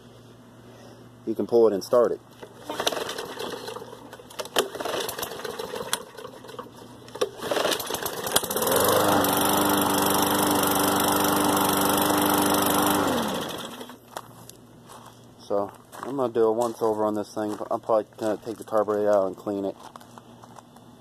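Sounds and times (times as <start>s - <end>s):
pull cord starting: 2.4s - 14.0s
lawn mower engine running: 2.4s - 14.1s.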